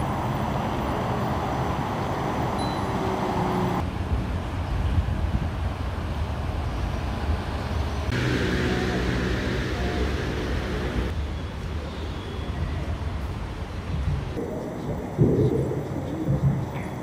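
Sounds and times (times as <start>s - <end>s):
road traffic rumble: 0.0s - 17.0s
vehicle engine hum: 6.7s - 11.2s.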